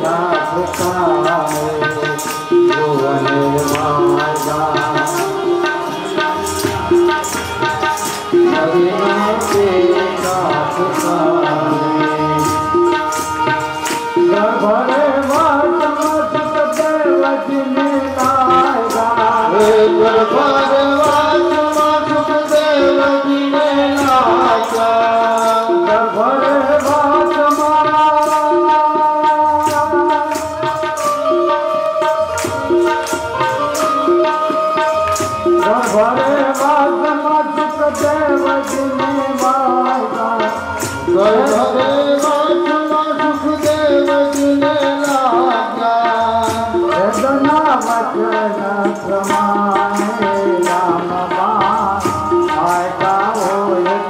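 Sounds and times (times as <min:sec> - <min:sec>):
people clapping in rhythm: 0:00.0 - 0:54.0
tabla: 0:00.0 - 0:54.0.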